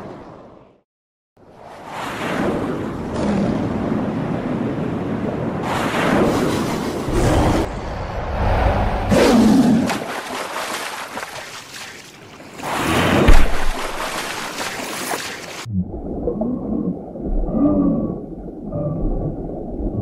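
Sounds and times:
heavy crashes and splashes: 9.0s - 15.7s
low rumbling: 15.7s - 20.0s.

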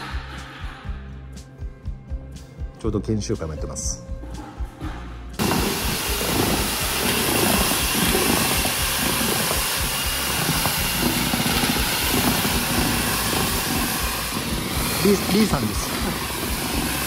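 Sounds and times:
blower rushing air: 5.4s - 17.0s.

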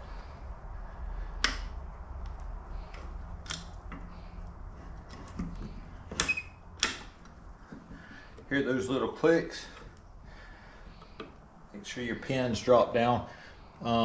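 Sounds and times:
metal latch clicking into place: 6.1s - 7.4s.

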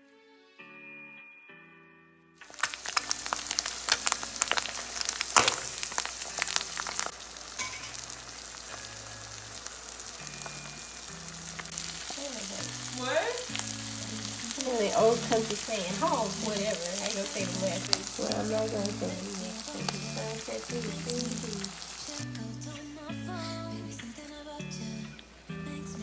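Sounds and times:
crackling pops: 2.4s - 22.5s
eggs sizzling in frying pan: 2.4s - 25.6s.

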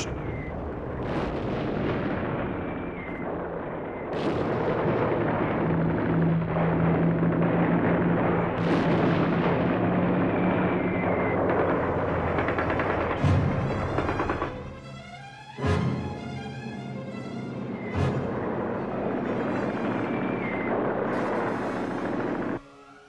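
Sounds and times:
bomb blasts: 0.0s - 14.3s, 17.1s - 22.6s
dense rumble: 0.0s - 14.6s, 17.0s - 22.6s
low engine drone: 16.2s - 22.6s.

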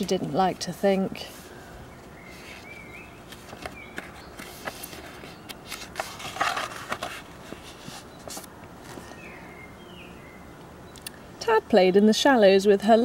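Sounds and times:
book page turning: 2.3s - 9.2s
paper rustles and small clicks: 3.3s - 9.2s.

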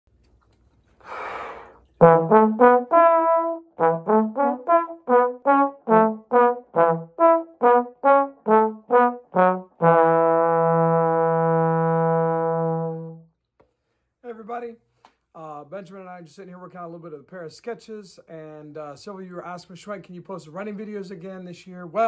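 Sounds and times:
trombone duet: 2.0s - 13.3s.

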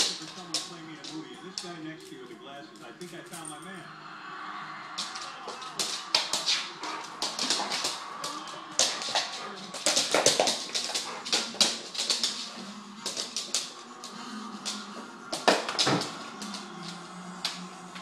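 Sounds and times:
dog claws on hardwood floor: 0.0s - 1.8s, 5.0s - 17.6s.

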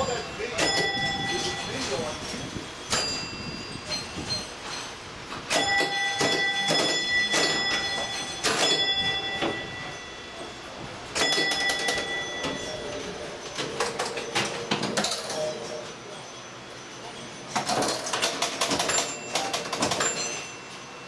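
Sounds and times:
bell ringing: 0.0s - 21.0s
mechanical clicking and clatter: 17.5s - 20.4s.

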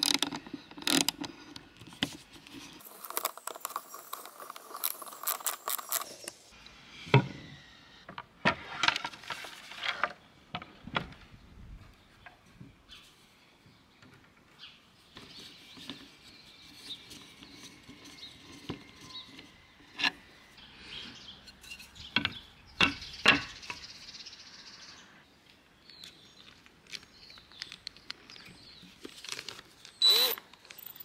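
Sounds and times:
wooden and metal parts clicking: 0.0s - 2.1s, 2.8s - 6.4s.

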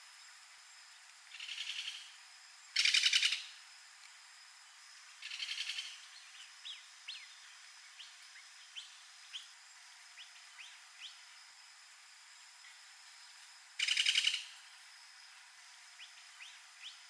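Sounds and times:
bird chirping: 5.2s - 9.5s, 13.8s - 14.6s.

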